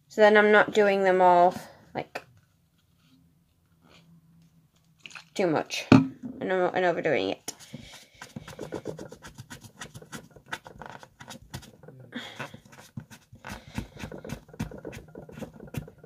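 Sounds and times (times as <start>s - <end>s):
tissue scratching against fingernails: 7.5s - 16.0s.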